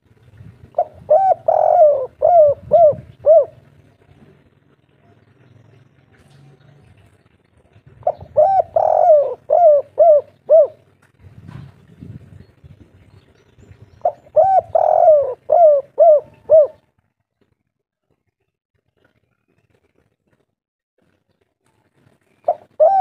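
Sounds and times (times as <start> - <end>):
dove cooing: 0.6 - 5.3, 7.8 - 11.0, 14.0 - 16.9, 22.4 - 23.0.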